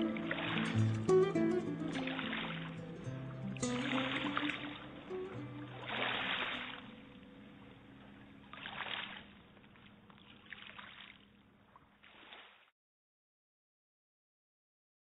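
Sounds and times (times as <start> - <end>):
sea waves washing in: 0.0 - 7.8.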